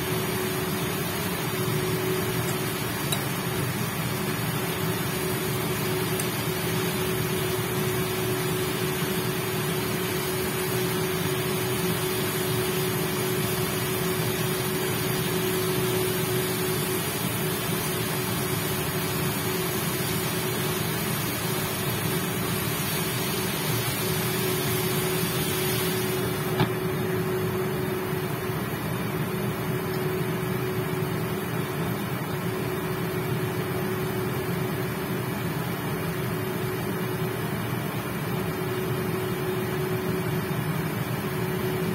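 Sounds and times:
induction cooktop hum: 0.0s - 41.9s.

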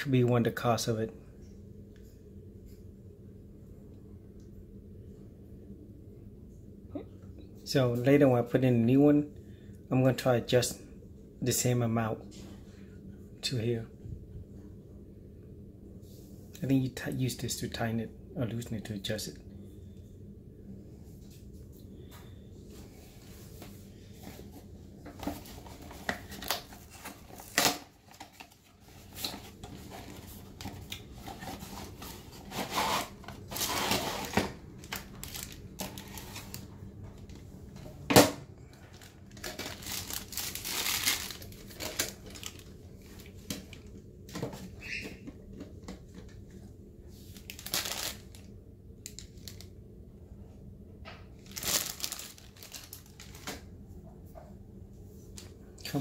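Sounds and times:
plastic bag and paper crinkling: 24.1s - 37.5s, 38.7s - 44.0s, 47.2s - 48.5s, 49.1s - 49.7s, 51.3s - 53.7s.

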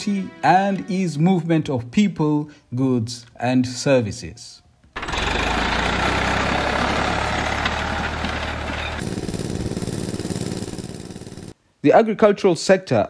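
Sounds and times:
petrol water pump running: 5.0s - 11.5s
tractor diesel engine running: 5.0s - 11.5s.

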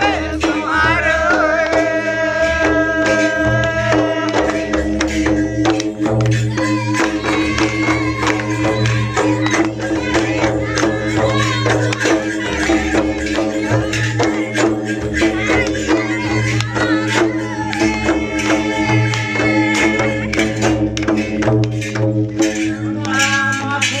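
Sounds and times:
person singing: 0.0s - 5.8s
jingling percussion: 0.0s - 24.0s
quick drum beat: 0.0s - 24.0s
sustained instruments: 0.0s - 24.0s.

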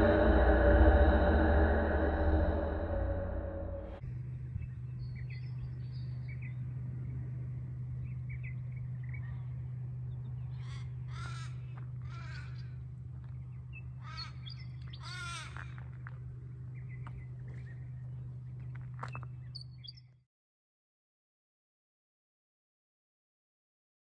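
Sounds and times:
low hum: 0.0s - 19.8s
small birds chirping: 7.9s - 15.8s, 16.7s - 20.1s
crows cawing: 10.6s - 12.8s, 14.0s - 15.9s.

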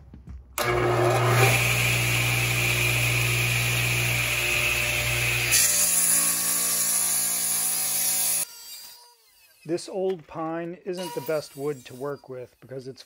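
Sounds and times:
radial arm saw cutting wood: 0.6s - 9.9s.

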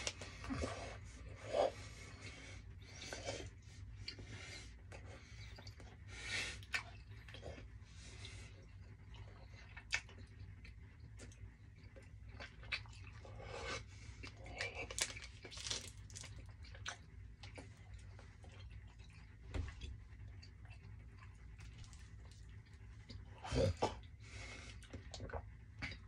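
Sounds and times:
person chewing candy: 2.8s - 24.1s.

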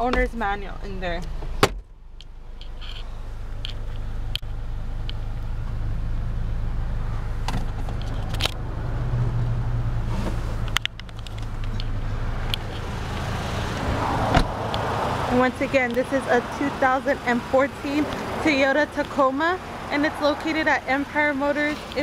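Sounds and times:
sharp clicks and knocks: 10.6s - 12.8s.

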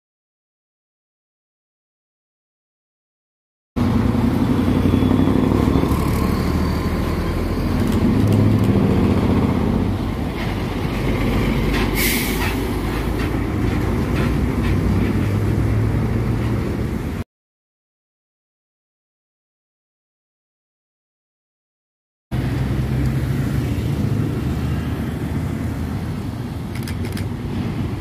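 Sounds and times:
diesel truck driving past: 3.8s - 17.2s, 22.4s - 26.3s
road noise: 3.8s - 17.3s, 22.3s - 28.0s
short sharp hiss: 12.0s - 12.6s.

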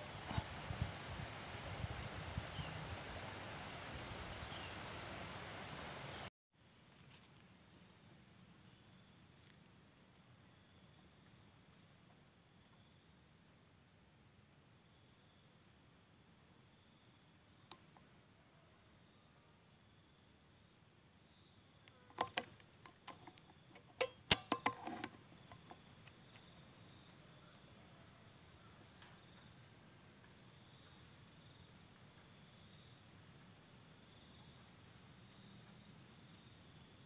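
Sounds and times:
insects chirring: 0.0s - 37.0s
sharp clicks and rustling: 22.1s - 25.8s.

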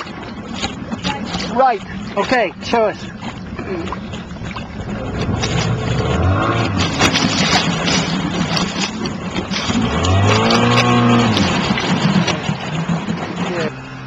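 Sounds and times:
outboard motor revving: 0.0s - 14.0s.

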